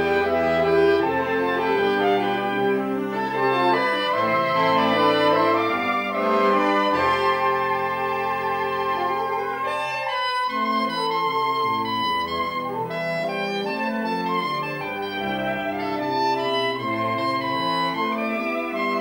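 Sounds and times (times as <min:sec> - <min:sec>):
saxophone ensemble playing chords: 0:00.0 - 0:19.0.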